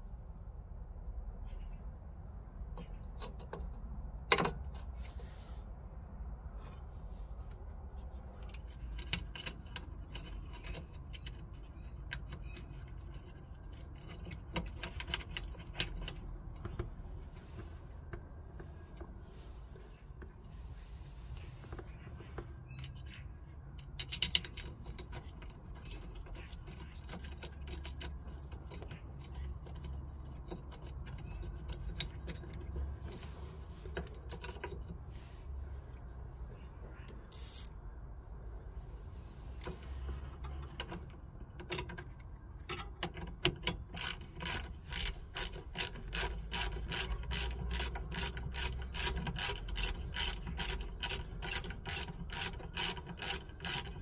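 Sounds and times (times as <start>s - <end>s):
low steady rumble: 0.0s - 54.0s
small metallic clicks and clinks: 22.8s - 33.2s, 40.4s - 54.0s.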